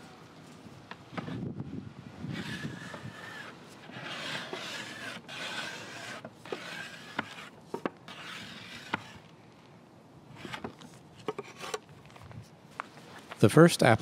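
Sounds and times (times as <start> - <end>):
metal scraper rasping on wood: 2.3 - 9.3, 10.3 - 11.8.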